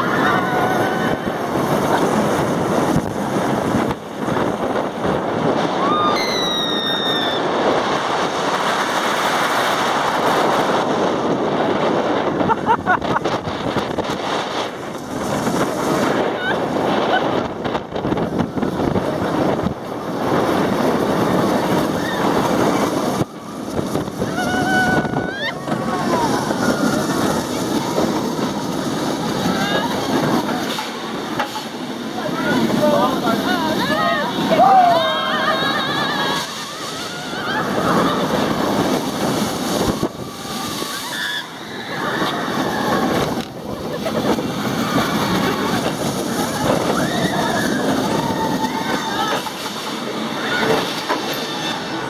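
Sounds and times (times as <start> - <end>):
roller coaster rumbling: 0.0 - 52.0
wind rushing over microphone: 0.0 - 52.0.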